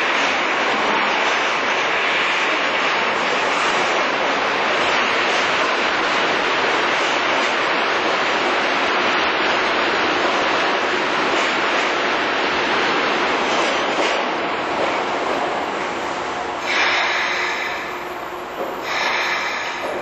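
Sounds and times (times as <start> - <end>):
subway train roar: 0.0 - 20.0.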